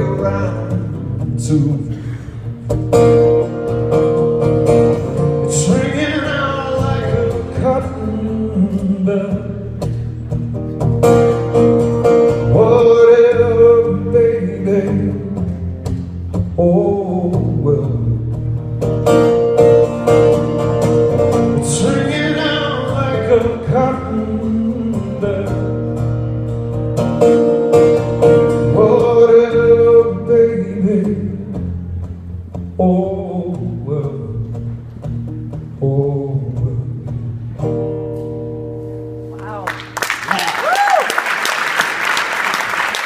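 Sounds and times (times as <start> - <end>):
man singing: 0.0 - 2.2, 5.4 - 9.9, 12.3 - 15.6, 16.6 - 18.2, 21.5 - 26.0, 28.4 - 31.6, 32.7 - 34.6, 35.8 - 37.3
acoustic guitar: 0.0 - 40.5.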